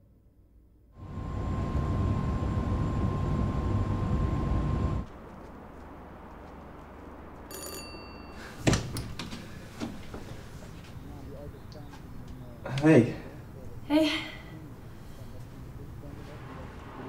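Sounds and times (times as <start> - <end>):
faint steady whine: 0.9 - 17.0
electronic doorbell tones: 7.5 - 8.6.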